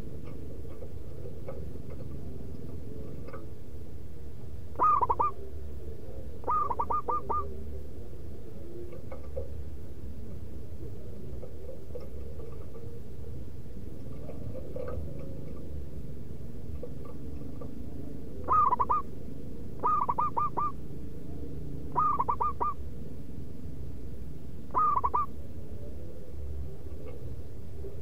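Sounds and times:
low background rumble: 0.0s - 28.0s
dove cooing: 4.7s - 15.8s, 16.6s - 22.9s, 24.7s - 28.0s.

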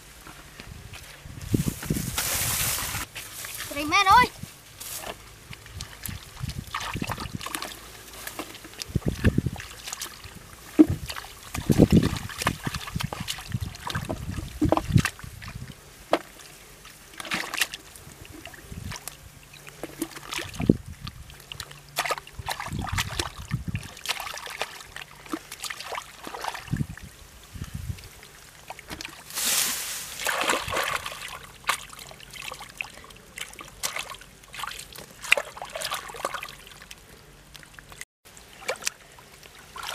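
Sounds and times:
hands splashing in muddy water: 4.8s - 15.6s, 17.2s - 27.0s, 28.7s - 37.0s.

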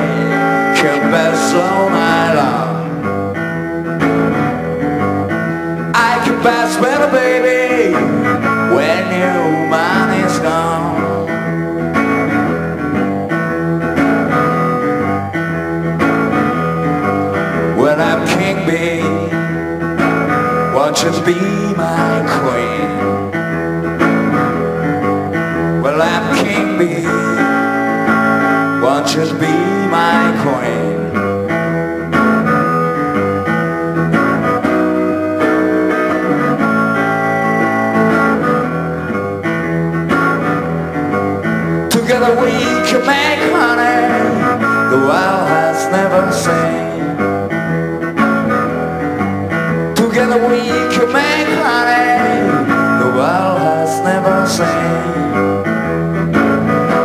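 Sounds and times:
guitar playing blues riff: 0.0s - 57.0s.

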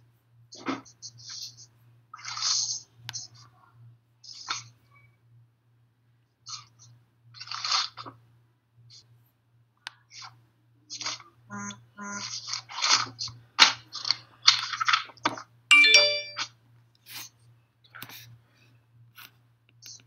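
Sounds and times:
electronic chime: 15.7s - 16.4s.

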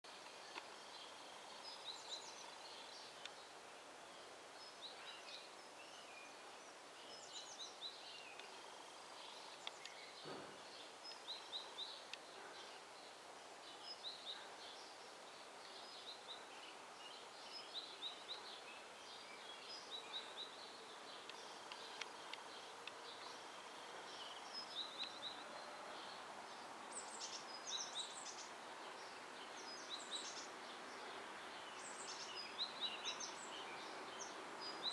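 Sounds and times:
small birds chirping: 0.0s - 34.9s
faint background hiss: 0.1s - 34.9s
sharp knock: 10.2s - 10.6s.

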